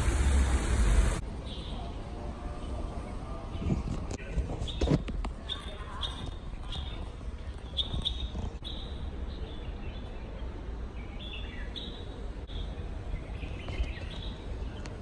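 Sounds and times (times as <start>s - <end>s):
small birds chirping: 3.5s - 15.0s.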